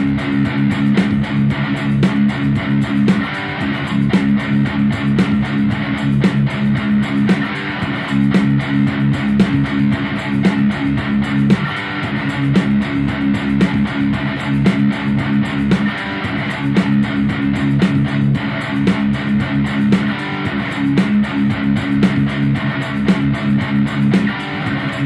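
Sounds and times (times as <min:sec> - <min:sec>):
guitar instrumental music: 0:00.0 - 0:25.0.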